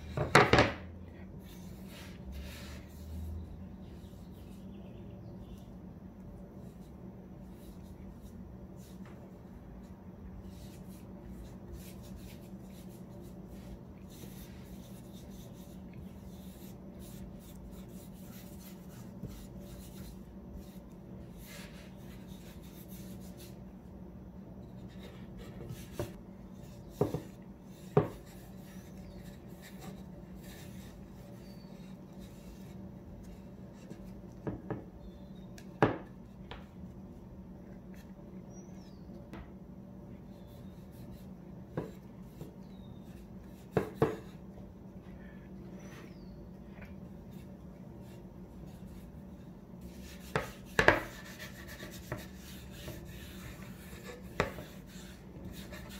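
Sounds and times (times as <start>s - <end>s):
steady low hum: 0.0s - 55.9s
board knocking on workbench: 0.2s - 0.8s.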